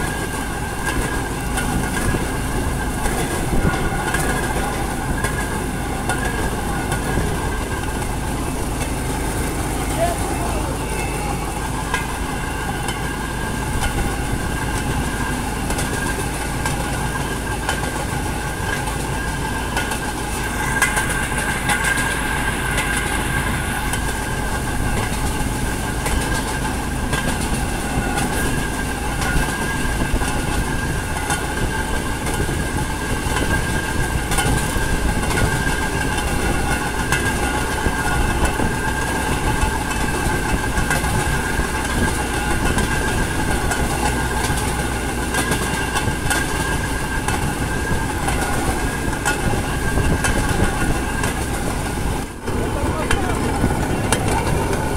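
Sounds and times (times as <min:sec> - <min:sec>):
high whine: 0:00.0 - 0:54.9
rail vehicle running on track: 0:00.0 - 0:54.9
wheels clicking over rail joints: 0:00.0 - 0:54.9.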